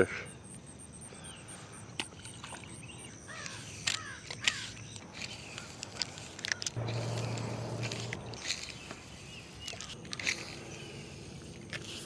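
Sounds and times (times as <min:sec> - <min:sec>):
crows cawing: 0:03.3 - 0:04.7
spinning reel whirring: 0:03.4 - 0:12.0.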